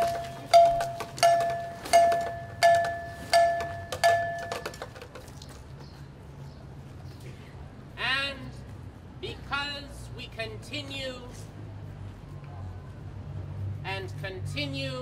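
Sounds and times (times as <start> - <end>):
metal bell strikes: 0.0 - 4.8.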